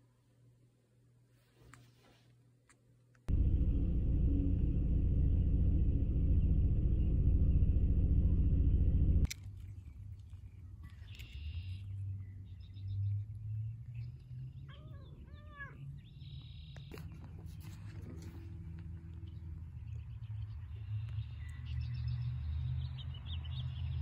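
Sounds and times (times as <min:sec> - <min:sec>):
steady low rumble: 0:03.3 - 0:09.3.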